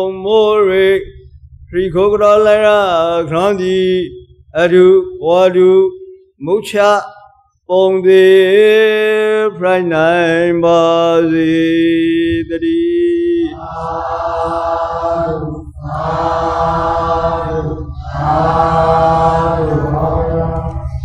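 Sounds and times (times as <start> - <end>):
low pulsing hum: 0.0 - 21.0
man chanting: 0.0 - 21.0.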